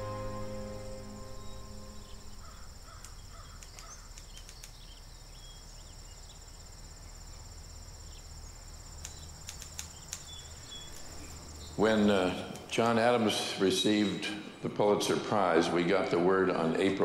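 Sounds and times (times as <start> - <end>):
faint chirps: 0.0 - 14.6
insects trilling: 0.0 - 15.6
soft clicks: 3.0 - 4.8, 9.0 - 11.1.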